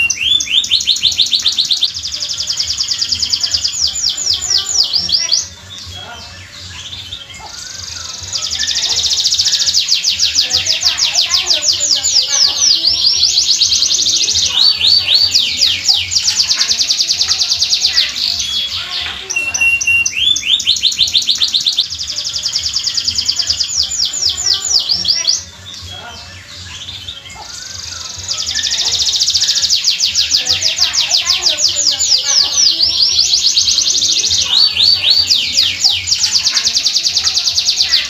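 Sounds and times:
canary singing trills: 0.0s - 38.0s.

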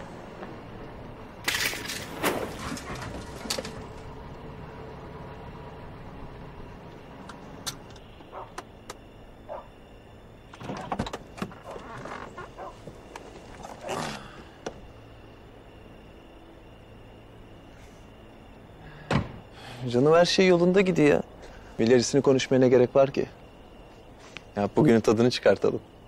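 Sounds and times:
car engine idling: 2.8s - 17.5s.

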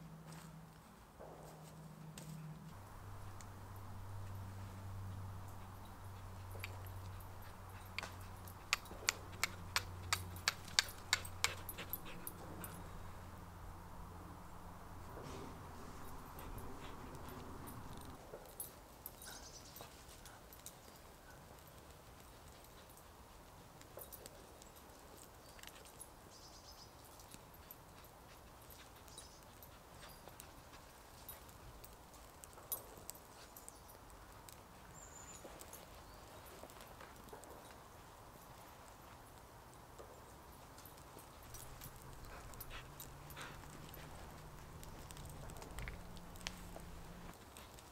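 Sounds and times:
dry sticks snapping: 6.6s - 12.2s, 41.6s - 47.9s
soft hiss of burning tinder: 12.8s - 47.9s
tinder crackling: 30.6s - 47.9s.

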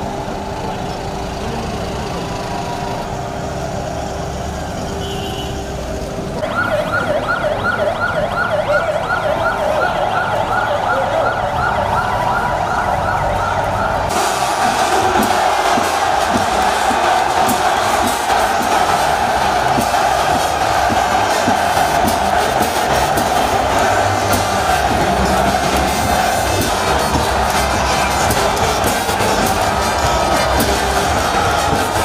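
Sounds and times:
crowd noise: 0.0s - 32.0s
vehicles running: 0.0s - 32.0s
siren yelping: 6.4s - 16.2s.

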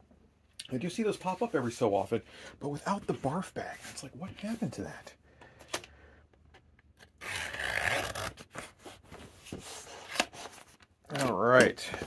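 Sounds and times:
knife slitting packing tape: 7.0s - 8.5s.

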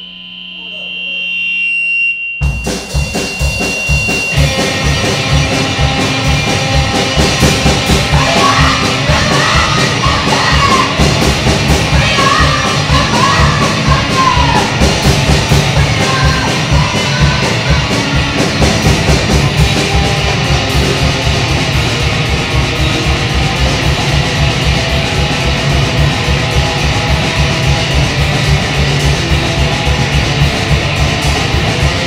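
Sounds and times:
distorted guitar: 0.0s - 32.0s
rapid drumming: 2.4s - 32.0s
vocals: 7.9s - 18.4s.

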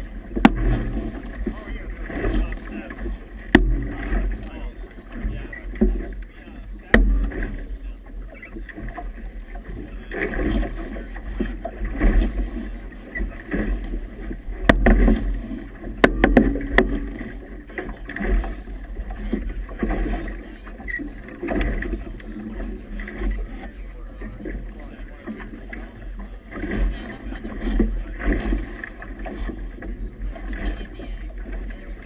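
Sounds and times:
waves slapping against boat hull: 0.0s - 32.0s
sharp knocks: 0.4s - 1.6s, 3.5s - 4.3s, 6.9s - 7.5s, 14.6s - 15.3s, 16.0s - 17.2s.

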